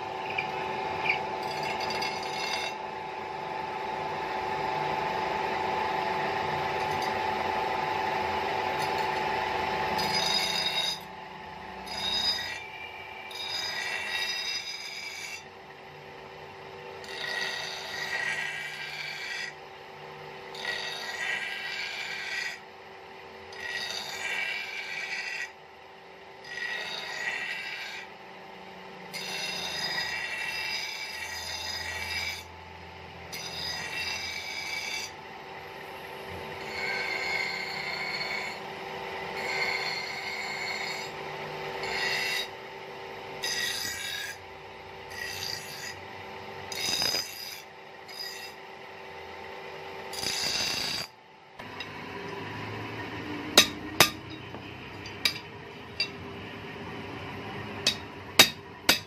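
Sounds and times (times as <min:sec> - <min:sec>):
knife blade grinding on wheel: 0:00.0 - 0:03.6, 0:04.8 - 0:15.5, 0:17.0 - 0:19.6, 0:20.4 - 0:22.7, 0:23.4 - 0:25.6, 0:26.3 - 0:28.2, 0:29.0 - 0:32.6, 0:33.2 - 0:42.7, 0:43.3 - 0:48.7, 0:49.4 - 0:52.8, 0:53.5 - 0:56.3, 0:57.4 - 0:59.0
grinding wheel hum: 0:00.0 - 0:59.0
hammer tapping blade on anvil: 0:53.6 - 0:56.2, 0:57.8 - 0:59.0.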